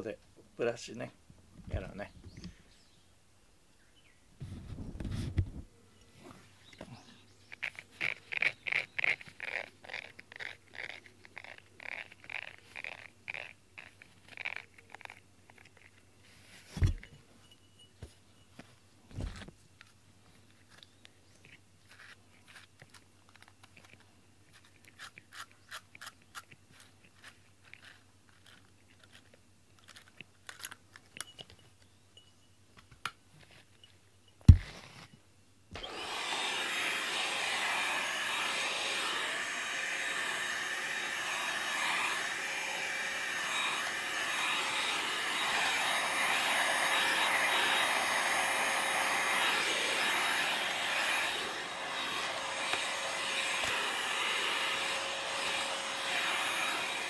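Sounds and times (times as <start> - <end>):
fingers scratching grooming brush: 7.5 - 15.9.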